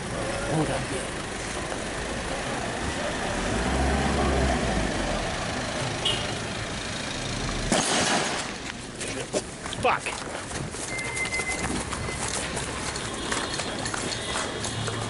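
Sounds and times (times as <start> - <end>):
road traffic: 0.0 - 15.0
vehicle engine rumble: 0.0 - 15.0
loud crackling burst: 7.7 - 8.6.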